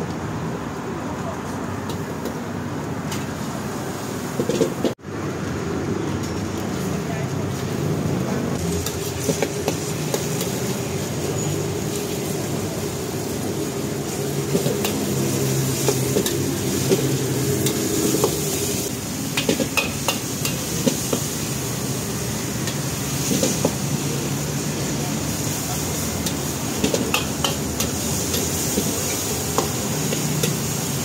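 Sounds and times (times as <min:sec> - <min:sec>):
meat sizzling in a wok: 0:07.5 - 0:31.0.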